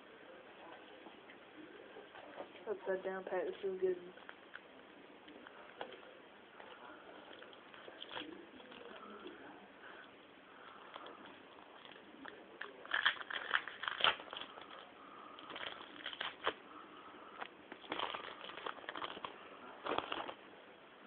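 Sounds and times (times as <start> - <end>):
wrapper crinkling: 10.9 - 16.6, 17.4 - 20.4
cards crackling and clicking: 11.9 - 16.7, 17.4 - 20.4.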